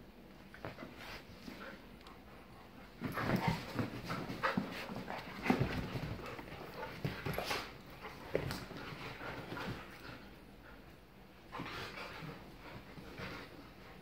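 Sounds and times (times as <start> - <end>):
dogs panting: 1.0 - 14.0
dogs scuffling on bedding: 2.7 - 10.4.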